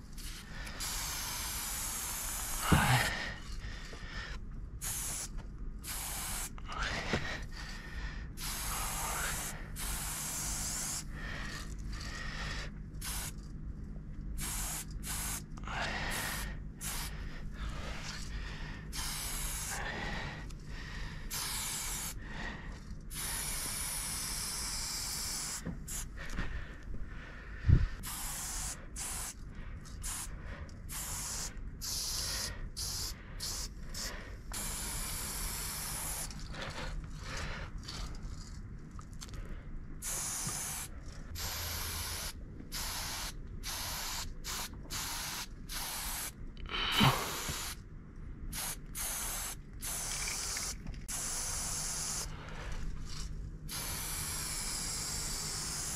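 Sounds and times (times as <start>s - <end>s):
spray paint can hissing: 0.1s - 3.0s, 4.8s - 6.6s, 8.4s - 11.7s, 13.0s - 13.4s, 14.4s - 17.1s, 18.9s - 19.9s, 21.3s - 22.2s, 23.1s - 26.1s, 28.0s - 30.3s, 30.9s - 36.5s, 40.0s - 47.8s, 48.5s - 52.3s, 53.1s - 55.9s.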